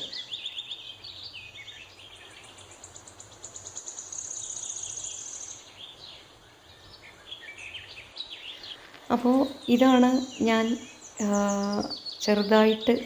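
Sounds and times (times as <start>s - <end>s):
faint background noise: 0.0s - 13.0s
small birds chirping: 0.0s - 13.0s.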